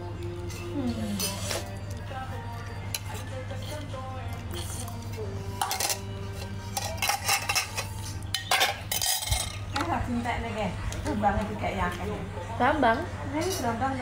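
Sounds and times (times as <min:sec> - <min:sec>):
cutlery and dishes clinking: 0:02.8 - 0:03.8, 0:04.5 - 0:09.9.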